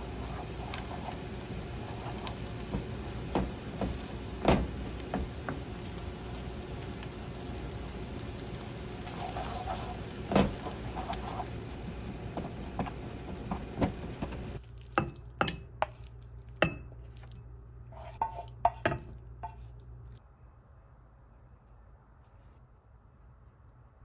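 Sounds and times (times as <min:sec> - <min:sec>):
wooden spoon scraping frying pan: 0:00.0 - 0:06.0, 0:08.9 - 0:14.6, 0:17.9 - 0:19.8
steady hiss: 0:00.0 - 0:14.6
knocks and scrapes on ceramic bowl: 0:18.0 - 0:19.7.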